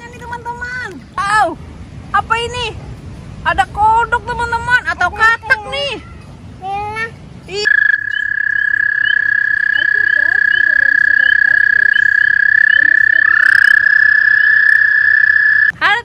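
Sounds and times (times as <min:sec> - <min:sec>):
rising toad trill: 0:07.6 - 0:15.7
toad trilling: 0:07.6 - 0:15.8.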